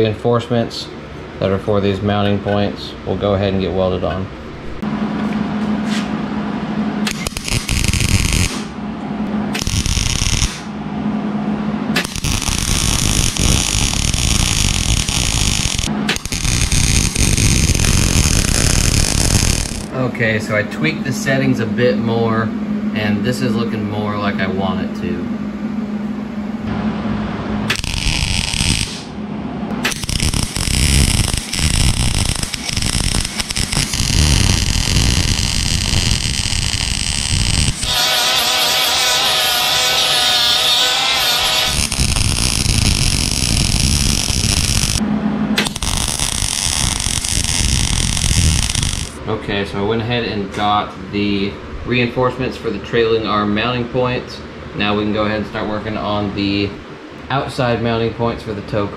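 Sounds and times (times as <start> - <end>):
low hum: 2.4 - 52.0
welder arc crackling: 7.1 - 8.7, 9.5 - 10.7, 12.0 - 19.9, 27.7 - 29.1, 29.7 - 45.0, 45.6 - 49.2.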